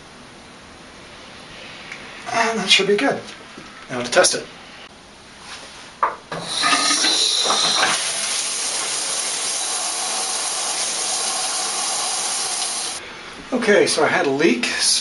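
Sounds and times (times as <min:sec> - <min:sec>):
shower water spraying: 0:06.4 - 0:13.0.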